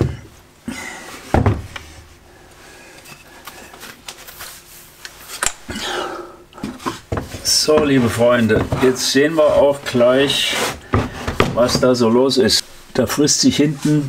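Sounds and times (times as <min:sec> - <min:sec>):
wood scraping: 0:06.6 - 0:12.1.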